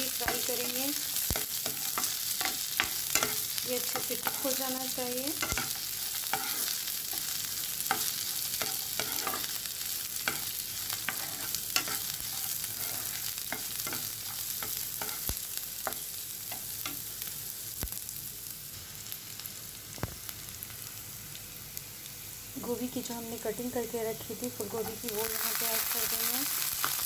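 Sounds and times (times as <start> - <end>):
vegetables sizzling in oil: 0.0 - 27.0
spatula scraping and tapping pan: 0.2 - 7.3, 7.9 - 9.5, 10.2 - 17.0.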